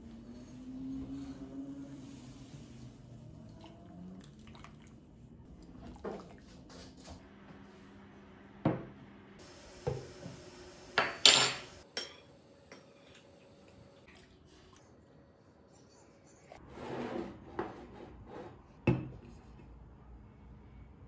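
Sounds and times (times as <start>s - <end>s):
bowl and spoon clinking: 11.0s - 13.2s.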